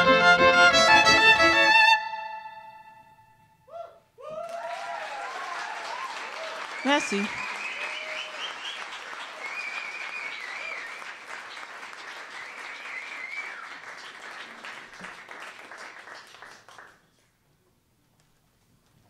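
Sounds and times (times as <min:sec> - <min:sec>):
audience applauding: 0:04.3 - 0:17.4
high whistles: 0:06.7 - 0:11.2, 0:12.2 - 0:13.8.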